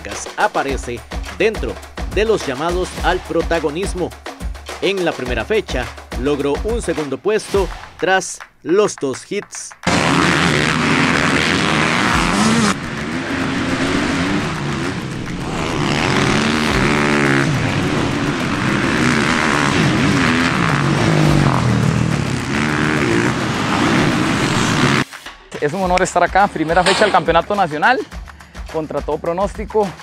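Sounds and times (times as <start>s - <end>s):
dirt bike engines revving: 9.8s - 25.0s, 25.9s - 28.0s.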